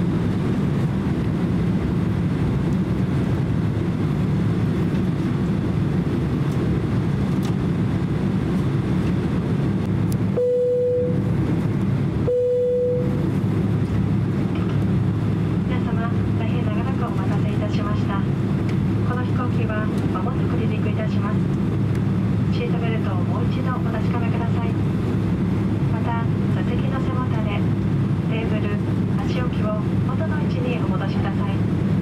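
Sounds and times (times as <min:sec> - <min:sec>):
jet engines rumbling in cabin: 0:00.0 - 0:32.0
short steady tones: 0:10.4 - 0:11.2, 0:12.2 - 0:13.2.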